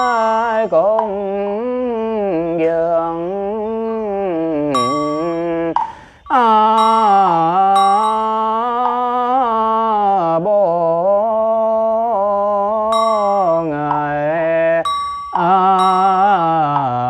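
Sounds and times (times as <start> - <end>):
bell struck: 0.0 - 1.2, 4.8 - 9.6, 12.9 - 17.0
person chanting: 0.0 - 17.0.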